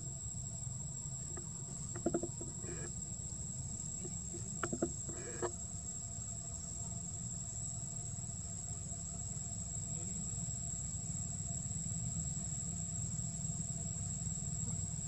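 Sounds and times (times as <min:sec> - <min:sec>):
insects buzzing: 0:00.0 - 0:15.0
short pitched calls: 0:01.8 - 0:02.9, 0:04.0 - 0:05.5.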